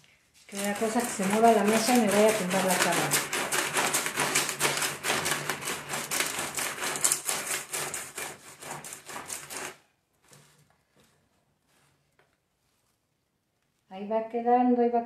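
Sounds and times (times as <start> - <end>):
ice clattering and crunching: 0.5 - 11.2.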